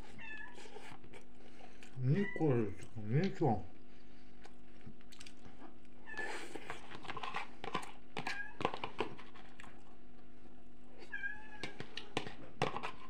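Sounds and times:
cat meowing: 11.1 - 11.6.

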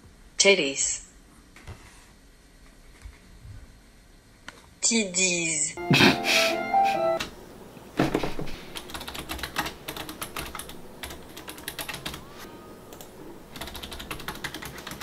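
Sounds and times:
typing on computer keyboard: 8.8 - 12.2, 12.9 - 15.0.

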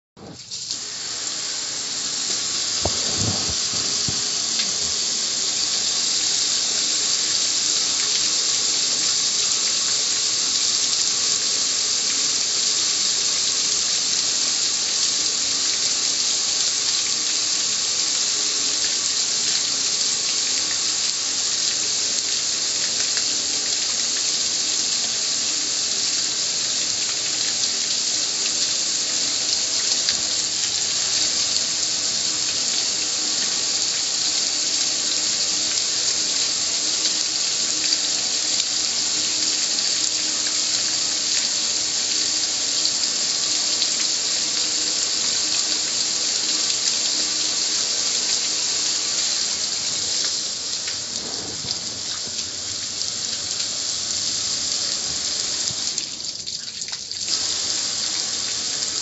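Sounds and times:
water spraying onto metal lid: 0.2 - 8.9, 45.0 - 59.0.

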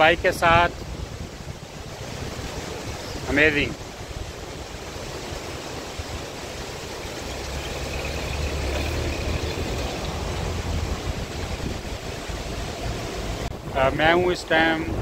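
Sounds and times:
rushing river: 0.0 - 15.0
suv engine driving past: 4.8 - 13.5.

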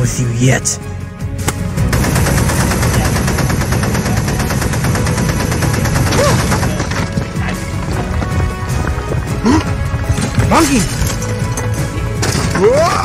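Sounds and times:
rapid cartoon bangs: 1.9 - 7.4.

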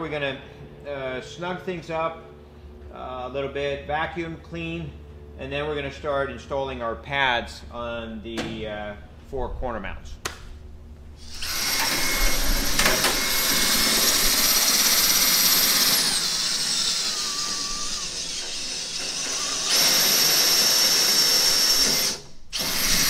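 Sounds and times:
cordless drill boring through steel: 11.2 - 23.0.

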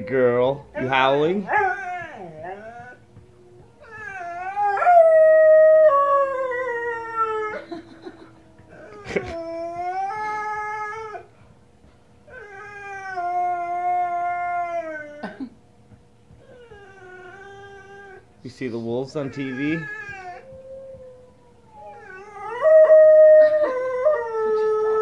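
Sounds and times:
dog howling: 1.4 - 7.7, 8.7 - 11.3, 12.3 - 15.2, 19.2 - 25.0.

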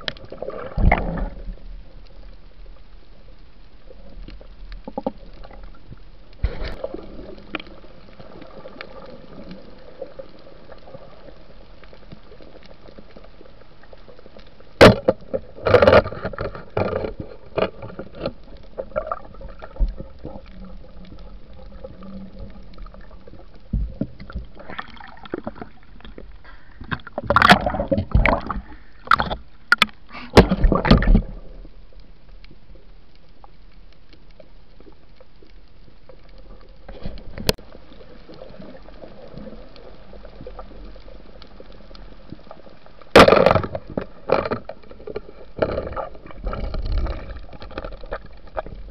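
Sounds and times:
water sloshing: 3.9 - 32.9
underwater knocks: 26.8 - 31.4.

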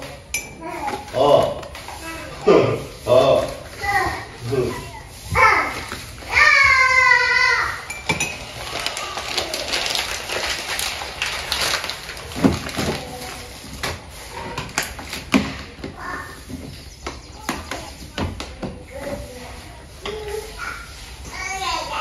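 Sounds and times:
faint children's voices: 0.0 - 22.0
household knocks and clinks: 7.8 - 19.2.

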